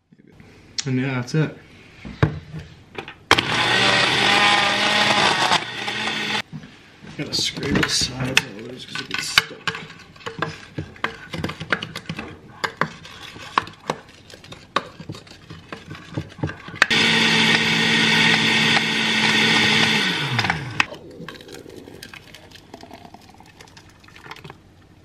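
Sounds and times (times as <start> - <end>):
blender running: 3.3 - 6.5, 16.8 - 20.9.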